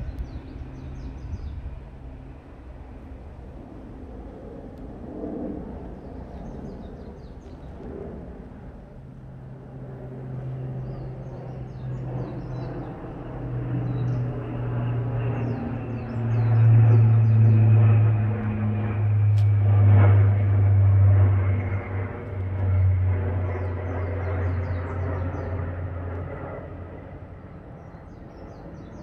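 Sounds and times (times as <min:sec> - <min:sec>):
small birds chirping: 0:00.0 - 0:01.8
aircraft engine drone: 0:00.0 - 0:29.0.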